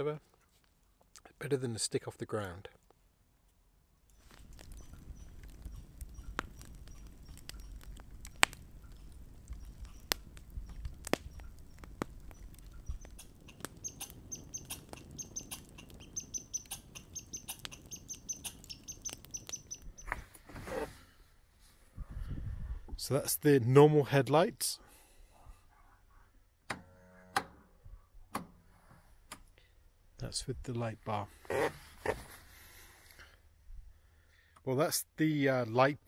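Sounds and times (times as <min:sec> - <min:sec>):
campfire crackling and popping: 0:02.7 - 0:20.4
bird chirping rapidly: 0:04.8 - 0:08.4, 0:09.6 - 0:20.1.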